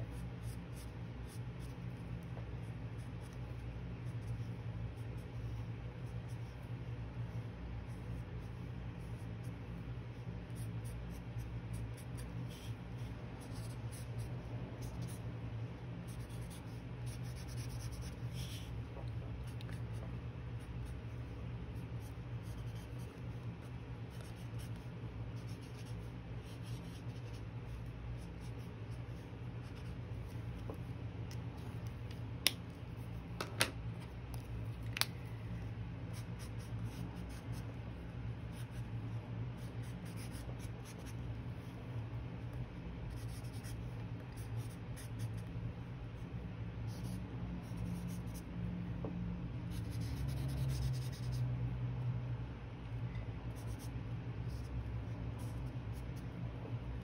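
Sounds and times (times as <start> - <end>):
steady low hum: 0.0 - 57.0
pencil scratching on paper: 7.8 - 15.2, 16.0 - 18.8, 21.8 - 23.4, 24.0 - 30.6, 36.1 - 37.7, 39.6 - 41.7, 43.1 - 45.5, 46.9 - 48.4, 49.7 - 51.4, 53.6 - 53.9.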